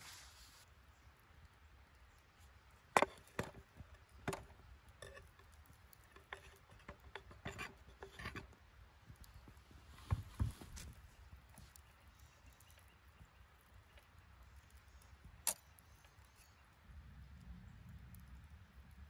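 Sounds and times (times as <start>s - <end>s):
light clicks and scraping: 2.0s - 16.8s.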